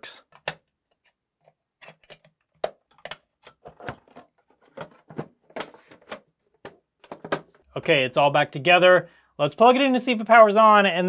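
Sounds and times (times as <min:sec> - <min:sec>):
metal and plastic parts clicking: 0:01.8 - 0:06.2.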